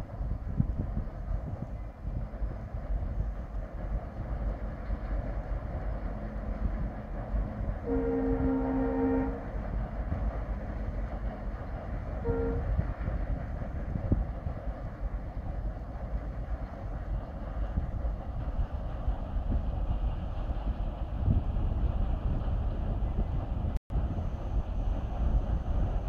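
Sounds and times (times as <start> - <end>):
distant train rumble: 0.0 - 26.0
locomotive air horn: 7.8 - 9.5, 12.2 - 12.8.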